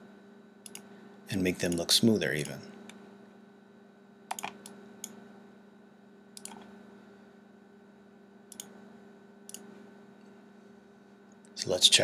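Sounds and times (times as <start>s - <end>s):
steady low hum: 0.0s - 12.0s
mouse buttons clicking: 4.3s - 5.2s.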